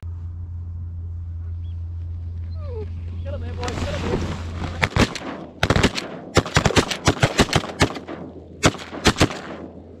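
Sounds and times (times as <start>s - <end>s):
shotgun shots: 4.7s - 10.0s.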